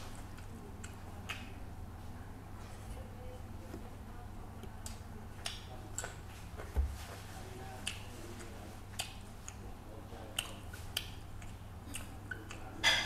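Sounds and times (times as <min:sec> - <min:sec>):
steady low hum: 0:00.0 - 0:13.0
wet chewing smacks: 0:07.8 - 0:09.6, 0:10.2 - 0:12.7.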